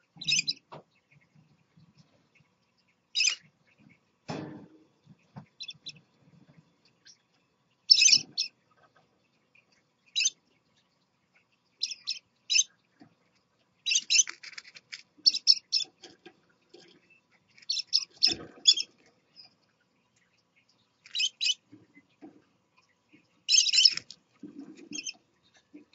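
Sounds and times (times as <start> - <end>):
parakeets chirping: 0.0 - 0.7, 3.1 - 3.8, 5.5 - 6.0, 7.8 - 8.8, 9.6 - 10.4, 11.4 - 12.8, 13.8 - 22.2, 22.9 - 25.3.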